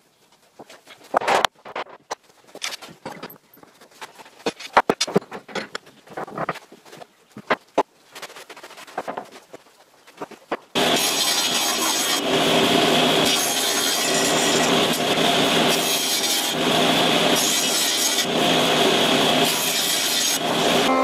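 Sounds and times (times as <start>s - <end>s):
table saw cutting boards: 10.8s - 21.0s.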